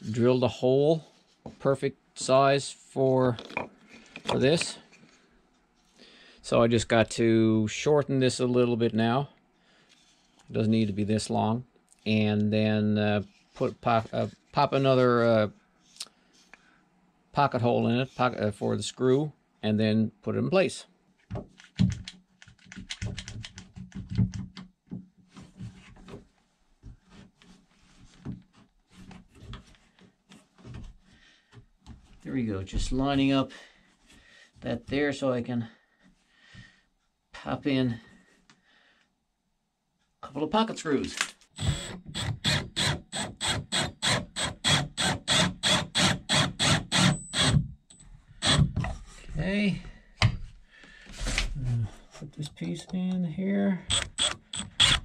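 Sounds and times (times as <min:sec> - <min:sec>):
cordless drill driving screw: 0:41.6 - 0:47.7, 0:48.4 - 0:48.8, 0:53.9 - 0:55.0.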